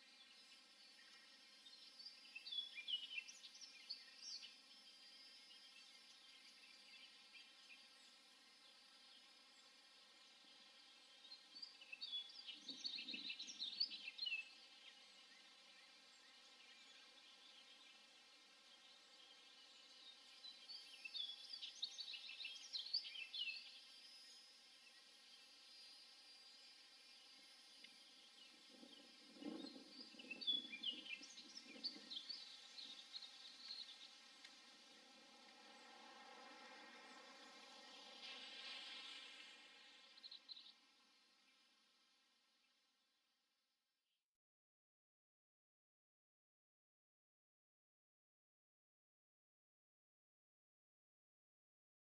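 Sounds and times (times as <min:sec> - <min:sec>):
bird chirping: 0:00.0 - 0:41.6
faint steady hiss: 0:00.0 - 0:43.7.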